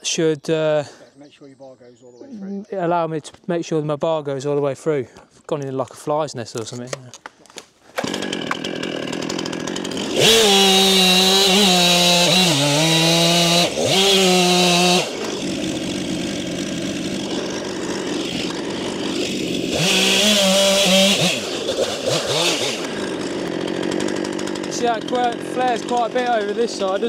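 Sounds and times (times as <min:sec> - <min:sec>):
chainsaw revving and idling: 0:07.9 - 0:27.0.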